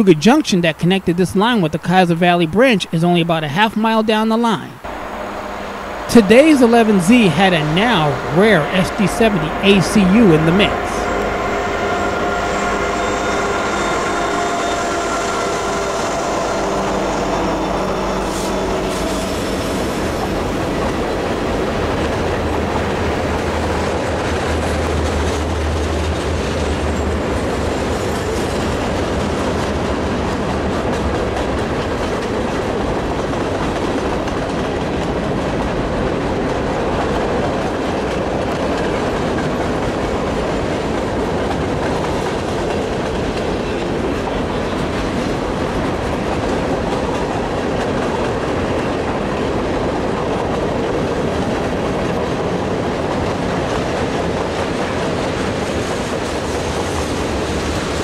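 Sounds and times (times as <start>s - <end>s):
diesel locomotive engine drone: 4.7s - 58.0s
freight cars clacking on rails: 4.8s - 58.0s.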